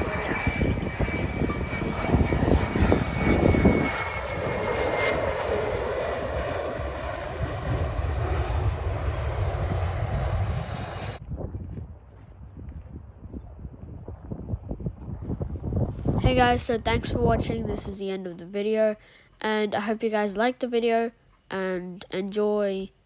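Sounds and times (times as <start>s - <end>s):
jet engine roar with high whine: 0.0s - 12.5s, 13.3s - 17.9s.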